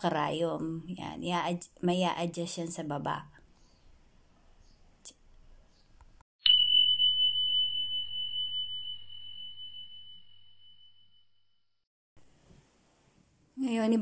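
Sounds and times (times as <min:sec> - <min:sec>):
bell ding: 0:06.4 - 0:11.2.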